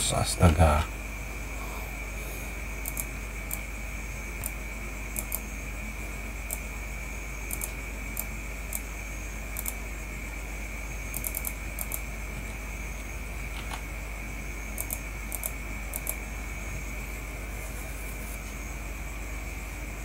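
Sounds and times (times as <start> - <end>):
background hiss: 0.0 - 20.0
faint high whine: 0.0 - 20.0
low hum: 0.0 - 20.0
computer mouse clicking: 2.8 - 3.6, 5.2 - 5.4, 7.5 - 8.9, 9.6 - 9.8, 11.1 - 12.0, 14.8 - 16.2.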